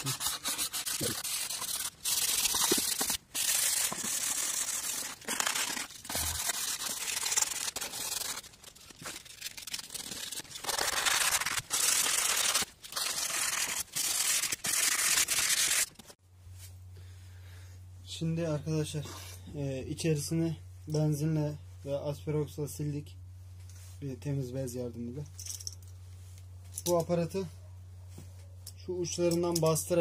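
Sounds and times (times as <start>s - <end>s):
sandpaper scrubbing metal: 0.0s - 15.9s.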